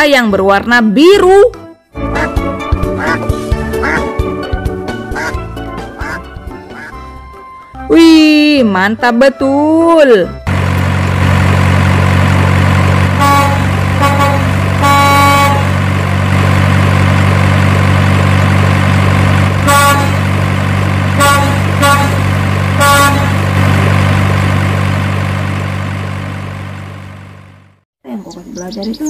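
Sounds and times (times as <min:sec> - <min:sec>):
truck engine running: 0:02.1 - 0:06.9, 0:10.4 - 0:27.8
truck horn honks: 0:03.0 - 0:04.1, 0:13.0 - 0:16.2, 0:19.3 - 0:24.4.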